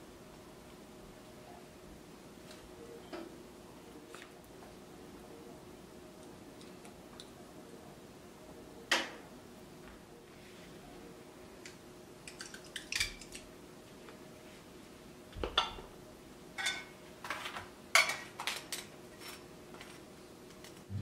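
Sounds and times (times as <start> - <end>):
utensils clinking against dishes: 16.6 - 20.0.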